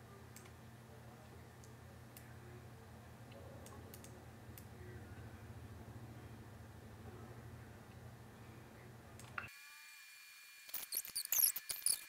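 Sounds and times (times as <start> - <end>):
faint low hum: 0.0 - 9.5
computer mouse clicks: 3.3 - 4.7.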